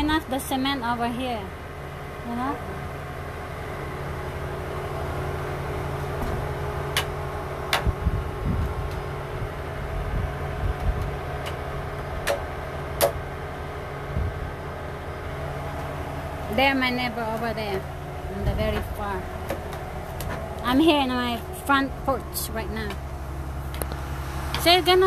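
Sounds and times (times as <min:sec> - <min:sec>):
steady mechanical hum: 0:00.0 - 0:25.0
dull low thumps: 0:07.7 - 0:11.2, 0:14.1 - 0:14.6, 0:17.4 - 0:20.6.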